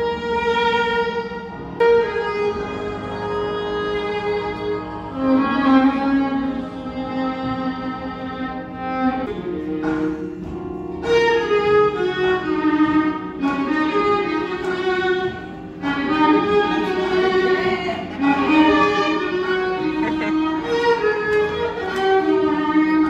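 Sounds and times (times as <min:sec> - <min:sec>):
violin melody: 0:00.0 - 0:23.0.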